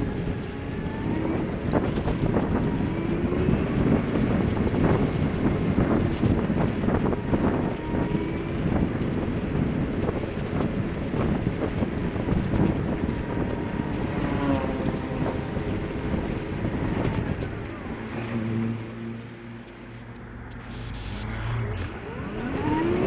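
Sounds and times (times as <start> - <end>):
rain spattering camera: 0.0 - 18.7
wind buffeting microphone: 0.0 - 23.0
tyres hissing on wet road: 20.6 - 22.0.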